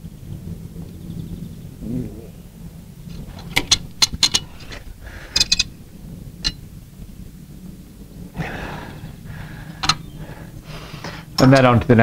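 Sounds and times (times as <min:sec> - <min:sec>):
soft hiss: 0:00.0 - 0:12.0
torque wrench clicks: 0:03.5 - 0:05.7.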